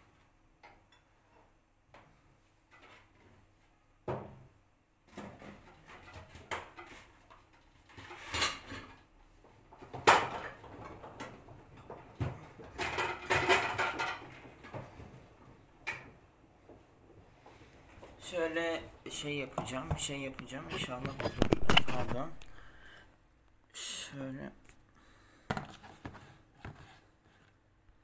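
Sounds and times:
load clunking and rattling: 9.7 - 16.8.

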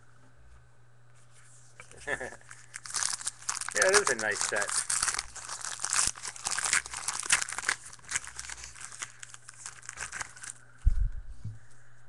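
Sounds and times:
plastic wrapper tearing and crinkling: 1.8 - 10.6.

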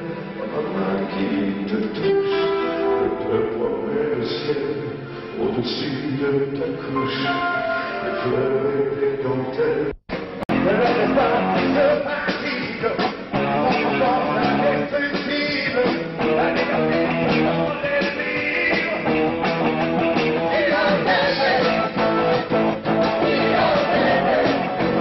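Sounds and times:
person singing: 0.0 - 19.4, 20.3 - 25.0
electric guitar: 10.1 - 25.0.

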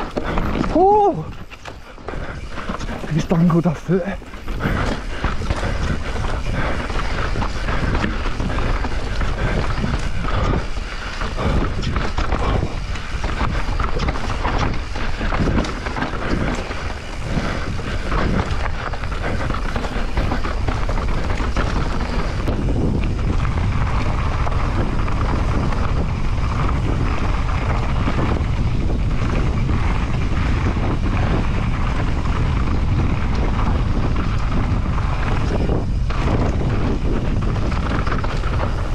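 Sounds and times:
bike rattling and knocking: 0.0 - 38.9
bike tyres on loose ground: 0.0 - 38.9
wind buffeting microphone: 0.0 - 38.9.

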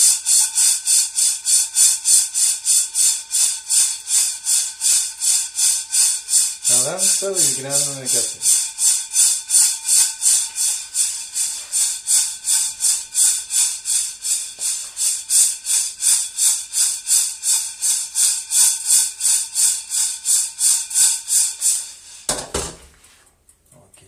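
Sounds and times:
coffee beans rattling in a pan: 0.0 - 23.2
pan knock: 22.3 - 22.9.

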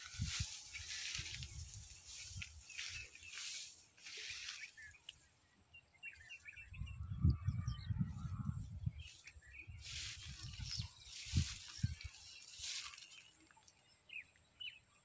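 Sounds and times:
low rumble on microphone: 6.6 - 9.1.

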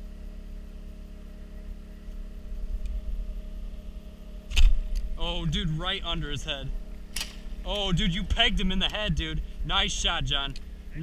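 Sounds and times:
boat motor humming: 0.0 - 11.0
bow string crack: 4.5 - 5.1, 7.0 - 7.6.

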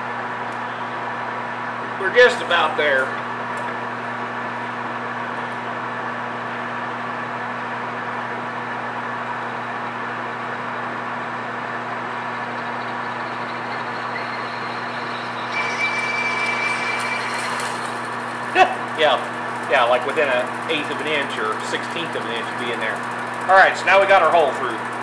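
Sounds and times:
lathe humming: 11.1 - 25.0
drill cutting aluminum whine: 12.3 - 25.0.

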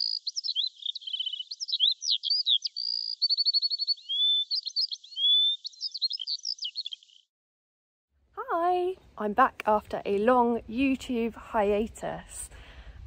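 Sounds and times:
songbird singing: 0.0 - 7.3.

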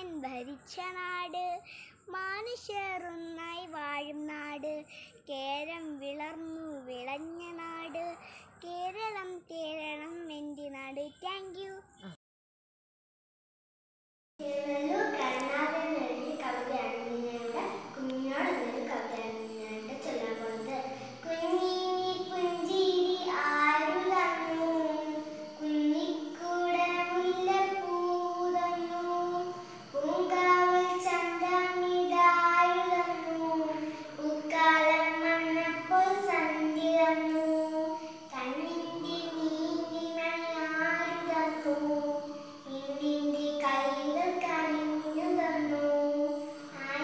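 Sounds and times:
girl singing long held notes: 19.4 - 36.3.

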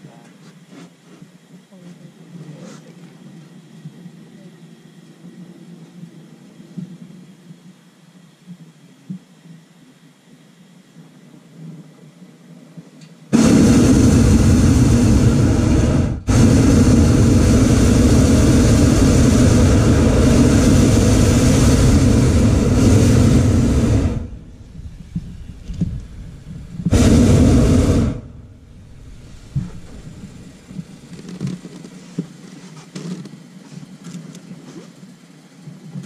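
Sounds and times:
propane burner roaring: 13.3 - 32.2.

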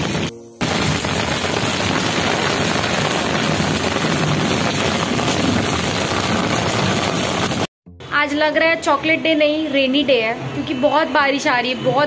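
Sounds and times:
heavy rain on concrete: 0.0 - 7.7.

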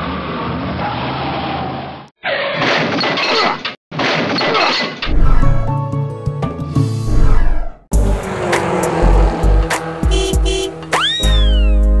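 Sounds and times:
background music: 7.9 - 12.0.

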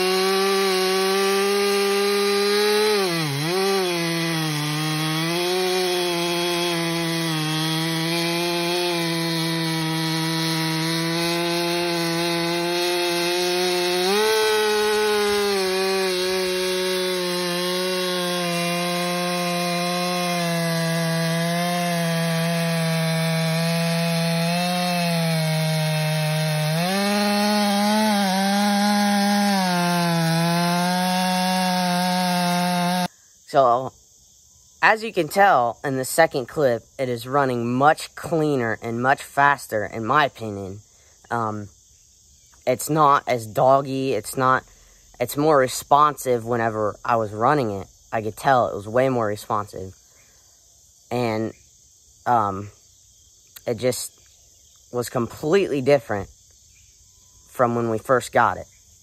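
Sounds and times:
chainsaw cutting log: 0.0 - 33.1.

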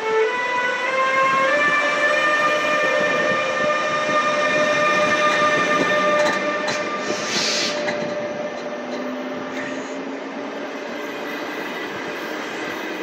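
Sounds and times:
electric locomotive whining: 0.0 - 13.0
wheels rumbling on rail: 0.6 - 13.0
brief hiss: 7.1 - 7.8.

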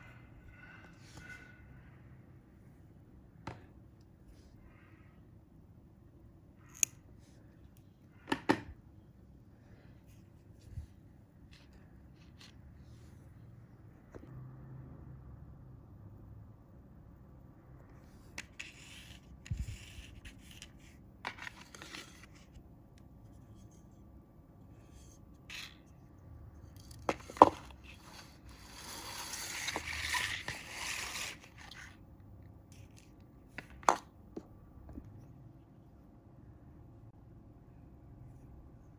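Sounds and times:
rustling scrape: 24.7 - 32.0.

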